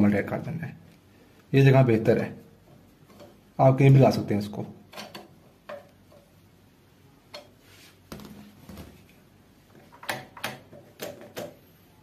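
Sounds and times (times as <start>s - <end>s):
sharp clicks and light knocks: 4.9s - 6.3s, 9.7s - 11.6s.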